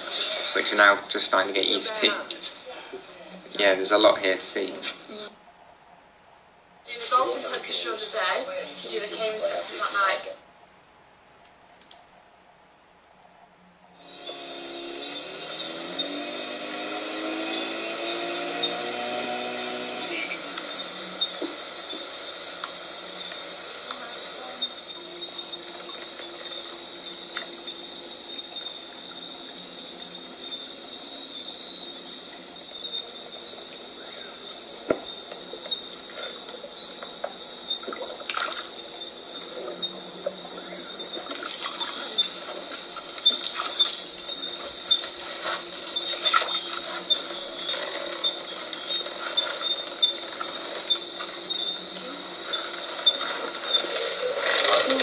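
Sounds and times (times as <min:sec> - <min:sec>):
night insects trilling: 0:00.0 - 0:06.0, 0:06.7 - 0:10.4, 0:13.2 - 0:55.0.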